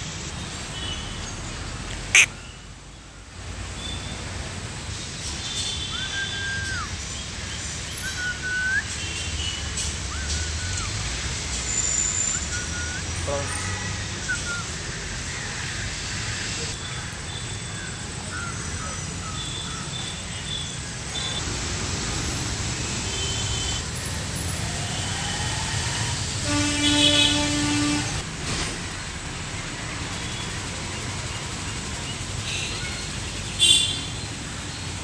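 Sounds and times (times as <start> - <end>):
traffic hum: 0.0 - 35.0
vehicle horn: 26.4 - 28.2.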